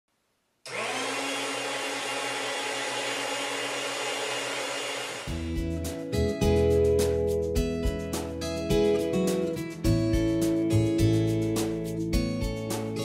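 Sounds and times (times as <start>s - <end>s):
electric food slicer humming: 0.7s - 5.5s.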